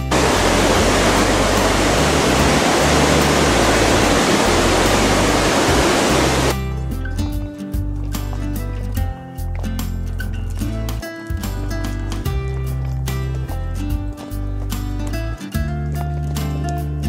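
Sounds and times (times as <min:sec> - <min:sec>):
waterfall roaring: 0:00.0 - 0:06.6
low music bass line: 0:00.0 - 0:07.4
music with clear notes: 0:06.6 - 0:17.0.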